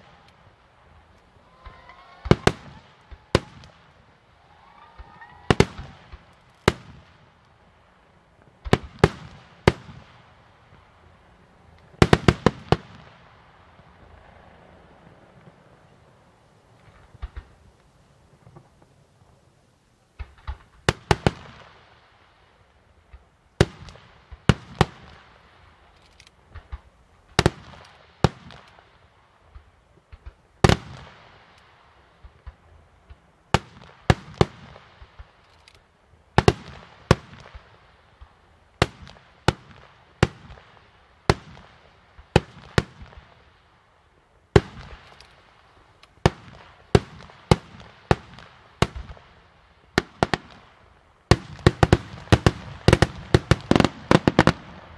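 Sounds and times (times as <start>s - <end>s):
firework shells bursting: 0.0s - 7.4s.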